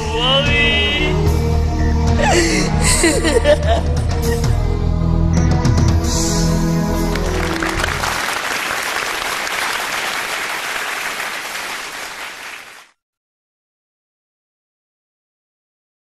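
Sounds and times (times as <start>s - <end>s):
stage music sustained notes: 0.0s - 12.5s
audience applauding: 6.9s - 13.0s.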